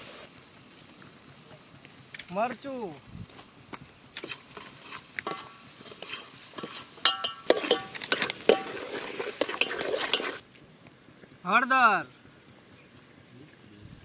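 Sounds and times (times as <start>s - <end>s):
metal spoon clinking in pot: 5.2s - 8.8s.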